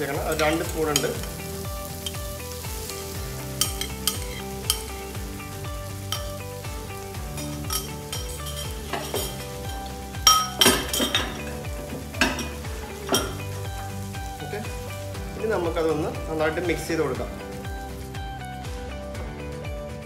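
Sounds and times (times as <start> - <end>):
egg sizzling in frying pan: 0.0 - 19.1
fork clinking against bowl: 3.6 - 4.9, 7.4 - 9.4.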